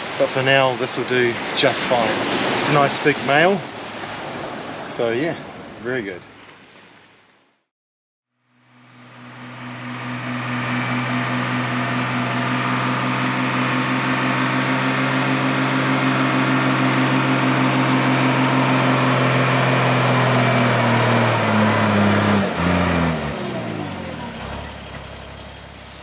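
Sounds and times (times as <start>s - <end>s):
truck diesel engine running: 8.4s - 26.0s.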